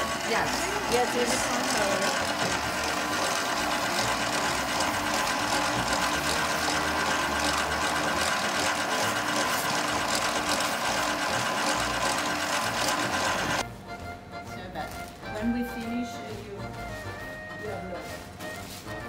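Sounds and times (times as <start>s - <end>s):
pasta machine motor whirring: 0.0s - 13.7s.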